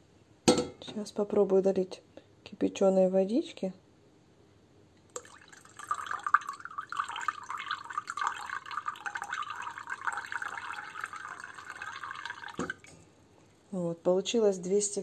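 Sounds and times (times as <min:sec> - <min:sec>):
water pouring into mug: 0:05.1 - 0:13.0.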